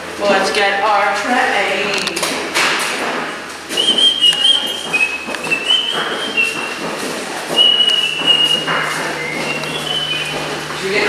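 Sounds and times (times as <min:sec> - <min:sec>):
train rumbling: 0:03.1 - 0:11.0
train wheels squealing: 0:09.2 - 0:10.4.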